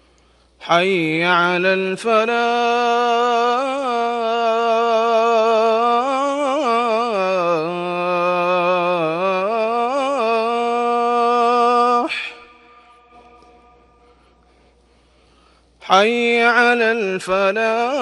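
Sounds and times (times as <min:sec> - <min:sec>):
man chanting call to prayer: 0:00.6 - 0:13.9, 0:15.8 - 0:18.0.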